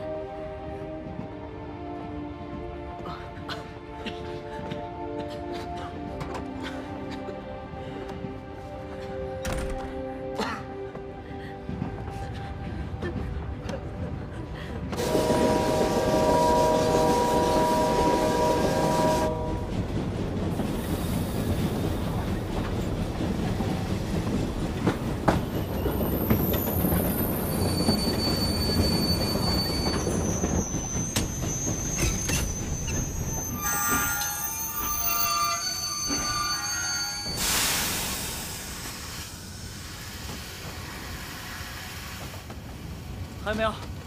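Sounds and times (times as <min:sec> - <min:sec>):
locomotive running on rails: 0:11.6 - 0:44.0
steam locomotive whistle: 0:15.0 - 0:19.9, 0:27.5 - 0:38.0
wheel and brake squeals: 0:25.4 - 0:37.6.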